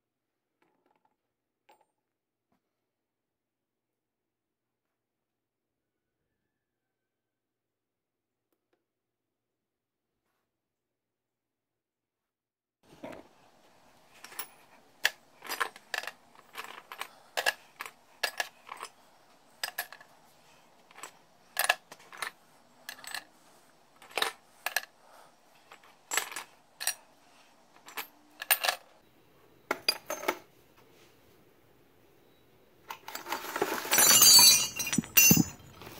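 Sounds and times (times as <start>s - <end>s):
metal fittings clinking on steel: 33.0s - 35.9s.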